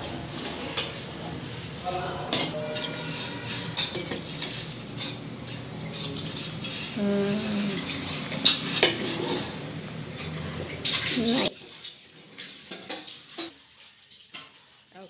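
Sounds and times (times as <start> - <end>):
metal utensils clinking on pot: 2.3 - 9.6, 12.4 - 13.5
short voice-like sound: 7.0 - 7.9.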